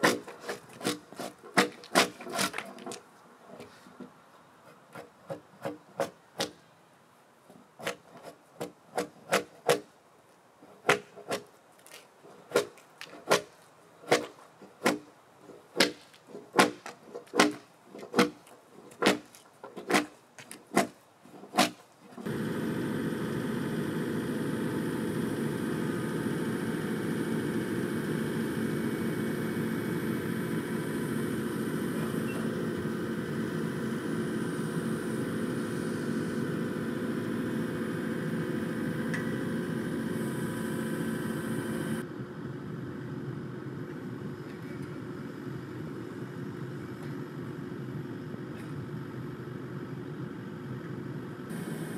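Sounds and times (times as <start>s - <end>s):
steady mechanical drone: 22.2s - 51.9s.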